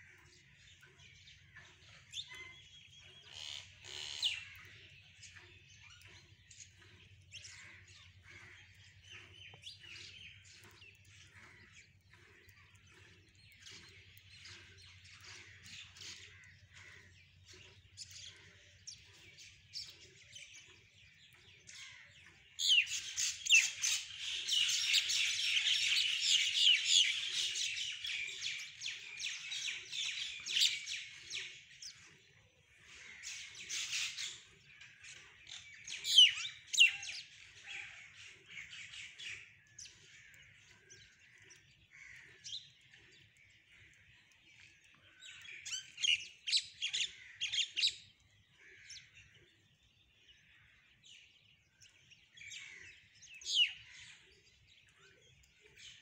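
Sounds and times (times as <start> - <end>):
birds chirping and squawking: 0.0 - 56.0.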